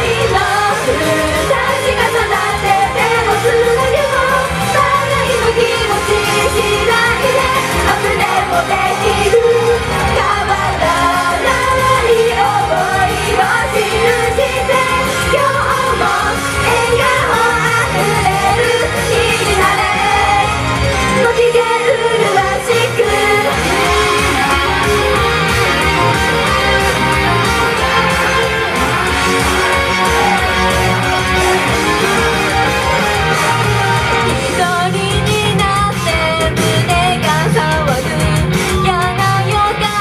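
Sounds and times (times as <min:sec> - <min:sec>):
women singing together: 0:00.0 - 0:20.6, 0:21.2 - 0:24.8
pop backing track with beat: 0:00.0 - 0:40.0.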